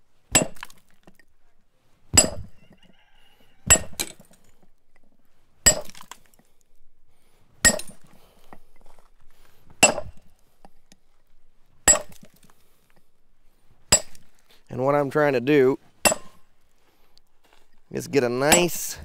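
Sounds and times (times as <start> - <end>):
hammer striking steel tool on stone: 2.2 - 2.5, 3.7 - 4.1, 5.7 - 5.9, 7.6 - 8.0, 9.8 - 10.2, 11.9 - 12.2, 13.9 - 14.2, 16.0 - 16.4.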